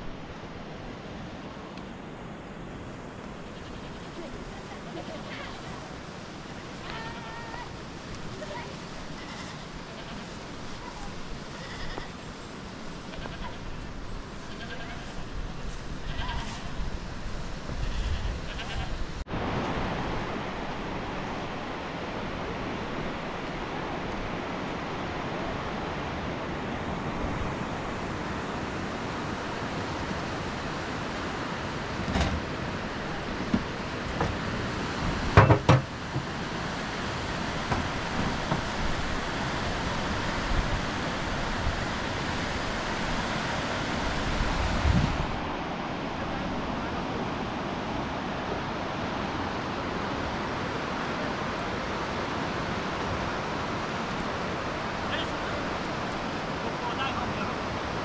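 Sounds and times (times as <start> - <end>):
rushing water: 0.0 - 58.0
goats bleating: 3.5 - 5.8, 6.8 - 7.7, 9.0 - 10.4, 11.5 - 12.2, 13.1 - 13.8, 14.4 - 15.4, 16.0 - 16.8, 17.8 - 19.0.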